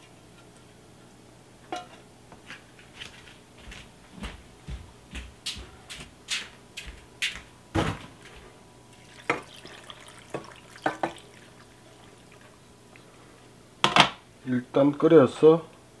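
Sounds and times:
water pouring into metal pot: 8.9 - 13.1.

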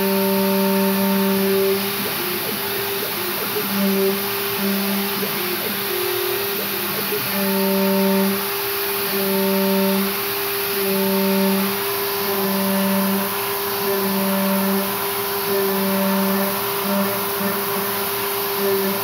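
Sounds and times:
coolant spray hissing: 0.0 - 19.0
milling spindle tone: 0.0 - 19.0
motor note ramping up and down: 0.0 - 19.0.

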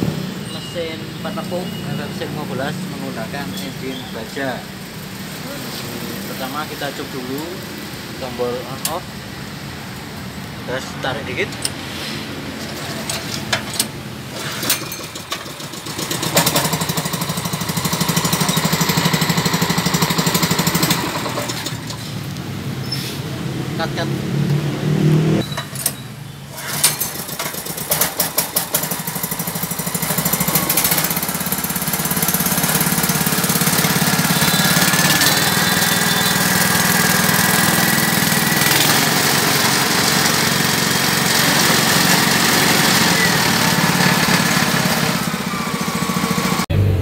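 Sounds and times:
recoil starter pull: 12.6 - 22.1, 25.4 - 46.6
small petrol engine running: 12.6 - 22.2, 26.5 - 47.0.

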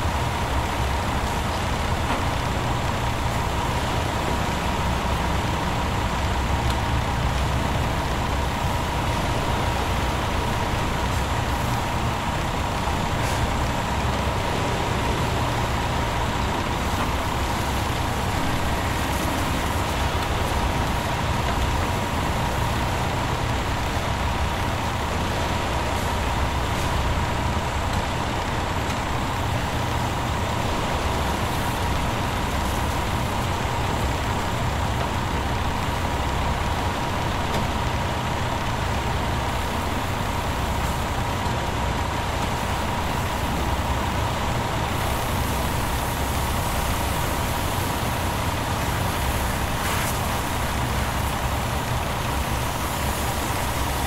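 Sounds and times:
truck engine running: 0.0 - 54.0
hose spraying water: 8.6 - 24.4, 29.5 - 35.1, 44.9 - 54.0.

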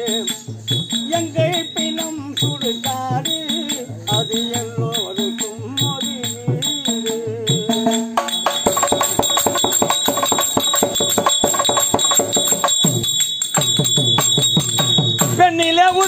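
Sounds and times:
fast drumming: 0.0 - 16.0
ringing bells: 0.0 - 16.0.

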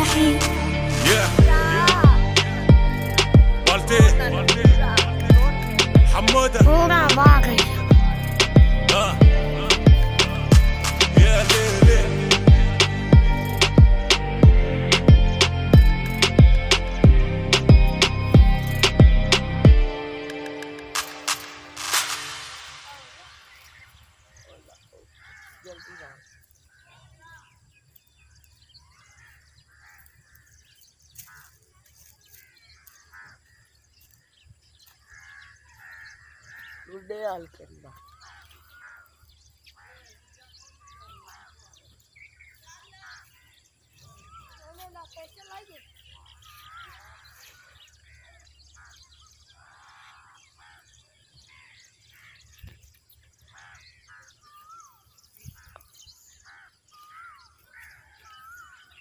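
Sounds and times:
small birds chirping: 1.2 - 59.0
faint crows cawing: 7.3 - 11.4, 12.1 - 27.6, 28.2 - 59.0
whistled bird notes: 42.4 - 50.2.

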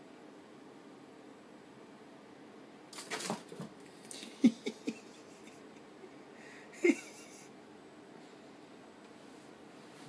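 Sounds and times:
kitten thumping and scrabbling: 3.0 - 3.8.

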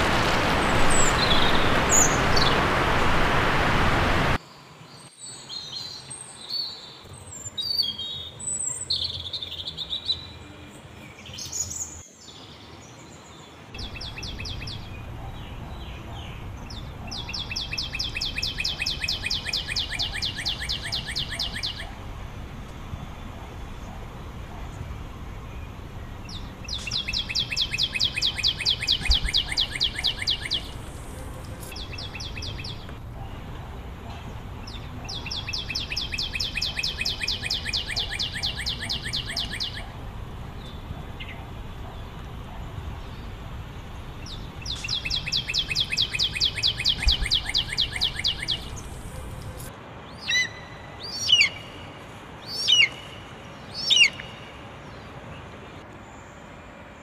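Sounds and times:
bird high-pitched chirps: 13.8 - 21.9, 26.3 - 30.8, 35.1 - 39.9, 44.7 - 48.8.

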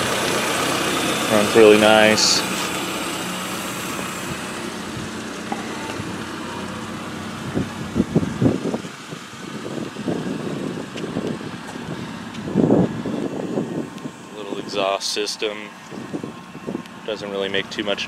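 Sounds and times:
car engine idling: 0.0 - 18.0
wind rumbling on microphone: 3.8 - 14.9, 15.8 - 17.2.

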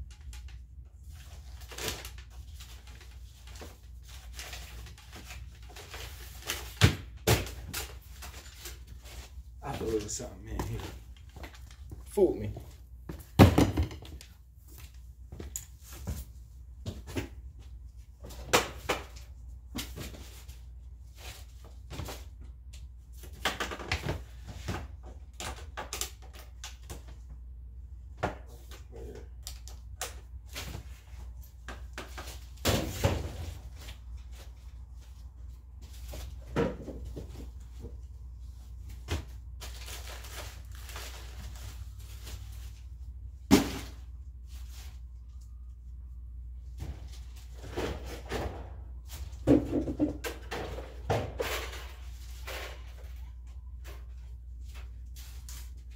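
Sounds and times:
plastic bins knocking and thudding: 13.1 - 14.4, 15.3 - 20.5, 23.2 - 27.2, 30.4 - 34.7, 35.9 - 38.1, 43.4 - 44.1, 46.7 - 53.2.

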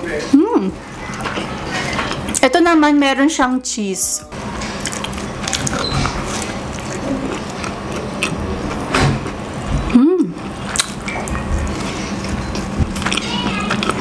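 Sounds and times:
chewing mouth sounds: 4.8 - 8.8, 10.7 - 14.0
person humming: 9.9 - 10.4.

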